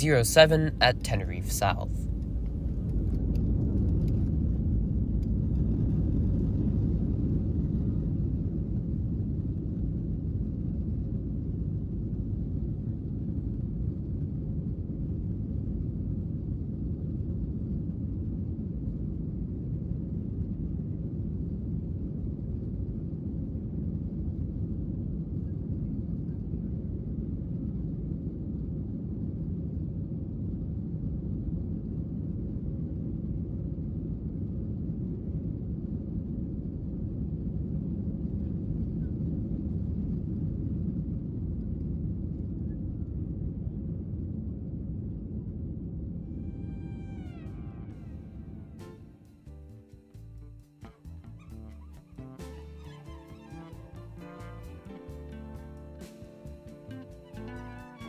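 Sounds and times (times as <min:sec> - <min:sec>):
aircraft engine rumble: 0:00.0 - 0:29.6, 0:45.5 - 0:58.0.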